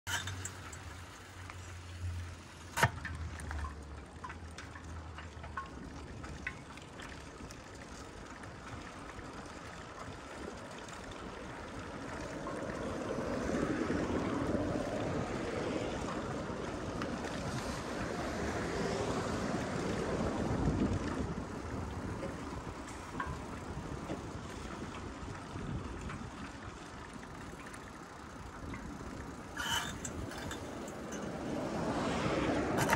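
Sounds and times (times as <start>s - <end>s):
road and traffic noise: 0.0s - 32.9s
wind on the microphone: 13.0s - 26.6s.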